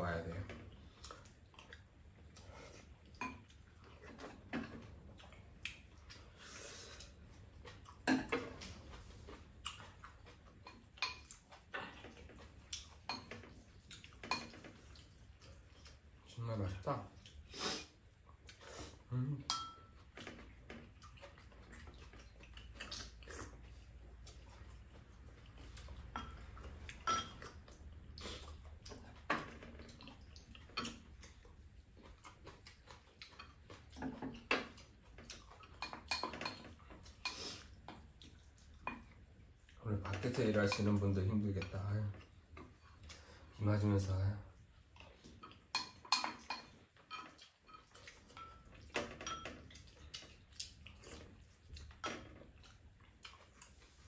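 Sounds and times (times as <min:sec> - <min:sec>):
cutlery clinking on ceramic bowls: 0:12.8 - 0:14.9, 0:19.5 - 0:20.5, 0:25.9 - 0:27.7, 0:30.6 - 0:31.1, 0:33.3 - 0:37.4, 0:40.1 - 0:41.0, 0:45.4 - 0:50.4.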